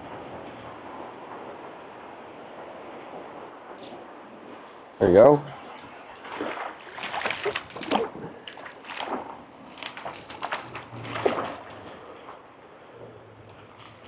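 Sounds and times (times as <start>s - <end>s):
fish splashing at water surface: 6.1s - 12.4s.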